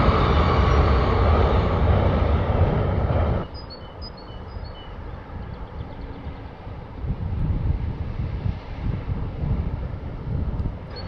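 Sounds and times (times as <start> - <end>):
train rumbling over steel bridge: 0.0 - 11.0
small birds chirping: 3.4 - 6.6.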